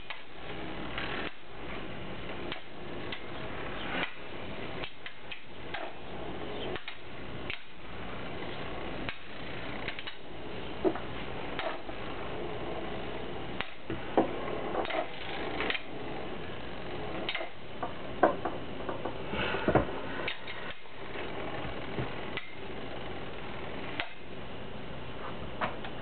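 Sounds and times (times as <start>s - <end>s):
spinning tops whirring: 0.0s - 17.7s.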